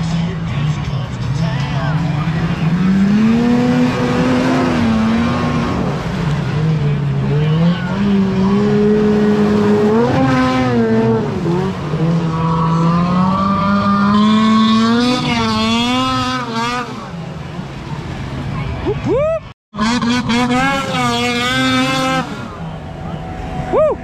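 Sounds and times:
snowmobile engines revving: 0.0 - 24.0.

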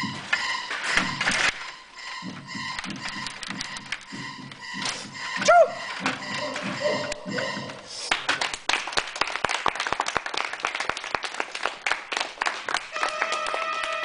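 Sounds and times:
steady held tone: 0.0 - 8.1
people applauding: 8.1 - 14.0.

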